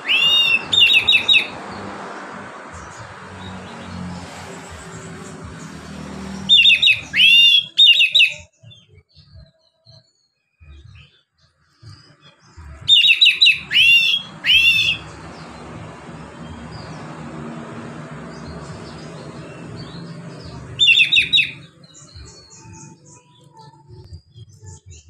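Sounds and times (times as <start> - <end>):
magpie-robin whistling song: 0.0 - 1.6, 6.4 - 10.1, 11.9 - 15.6, 18.9 - 23.4.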